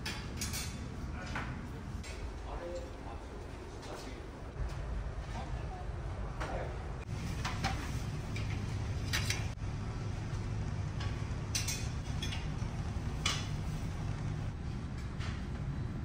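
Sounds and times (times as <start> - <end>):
dishes and utensils clinking: 0.0 - 0.9, 10.9 - 13.7.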